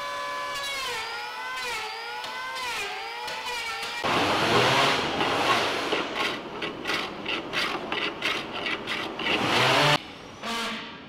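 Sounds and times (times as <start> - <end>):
hand plane shaving wood: 4.0 - 10.0.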